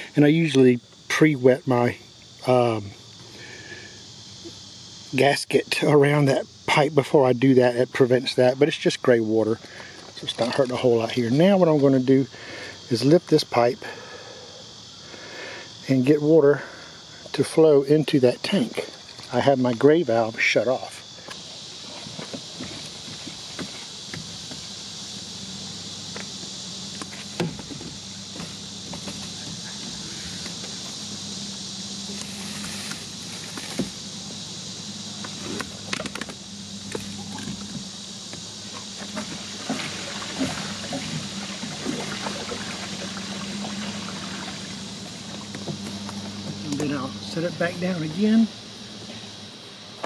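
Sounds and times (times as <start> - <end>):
insects chirring: 0.0 - 50.0
low steady hum: 0.0 - 50.0
hose knocking: 21.8 - 24.7, 26.9 - 30.9, 35.2 - 47.0
water running through hose: 32.1 - 34.0, 38.7 - 47.4.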